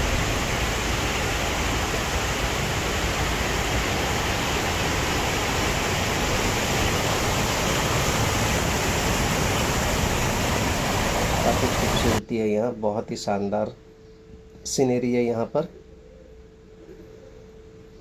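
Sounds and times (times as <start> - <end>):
waterfall rushing: 0.0 - 12.2.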